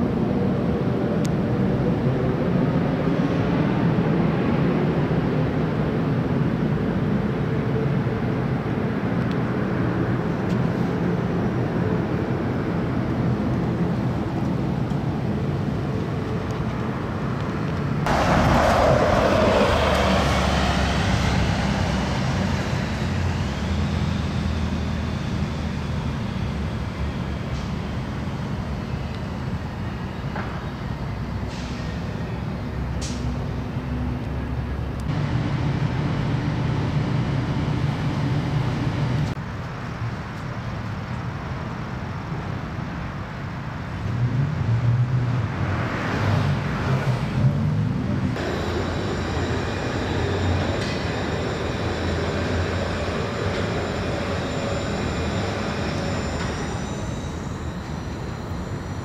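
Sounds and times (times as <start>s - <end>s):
hum of vehicle engines: 0.0s - 59.0s
vehicle passing close: 18.0s - 25.8s.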